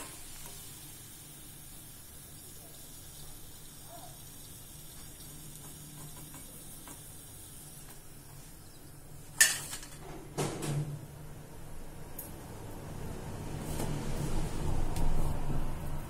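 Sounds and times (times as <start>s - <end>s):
frying oil sizzling: 0.0s - 10.0s
metal spoon clanking on cookware: 9.4s - 10.0s.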